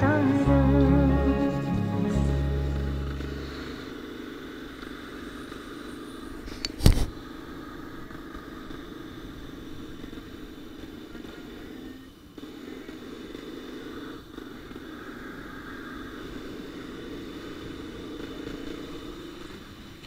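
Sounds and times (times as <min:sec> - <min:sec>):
motorcycle engine: 0:00.0 - 0:05.6
road noise: 0:00.0 - 0:12.4.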